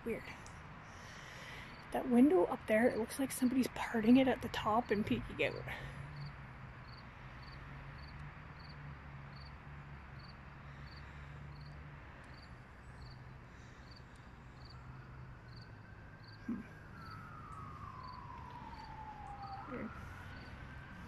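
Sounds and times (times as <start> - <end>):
faint traffic hum: 0.0 - 21.0
crickets chirping: 1.6 - 1.9, 6.1 - 20.9.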